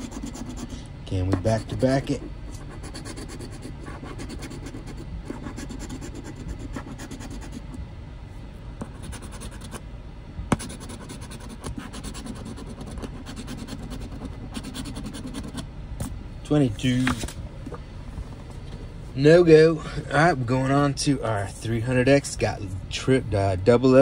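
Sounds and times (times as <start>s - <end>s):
coin scraping scratch card: 0.0s - 0.8s, 1.4s - 7.6s, 8.8s - 9.8s, 10.6s - 15.6s.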